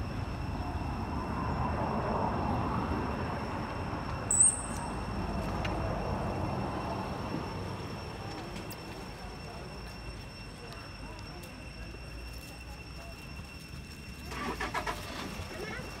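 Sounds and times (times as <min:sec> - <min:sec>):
faint high whine: 0:00.0 - 0:16.0
outdoor background rumble: 0:00.0 - 0:16.0
high-pitched chirp: 0:04.3 - 0:05.1.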